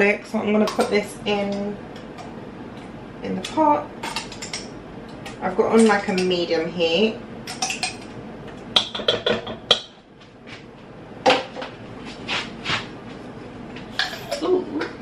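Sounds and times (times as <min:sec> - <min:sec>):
spoon clinking on glass jar: 0:14.0 - 0:14.4.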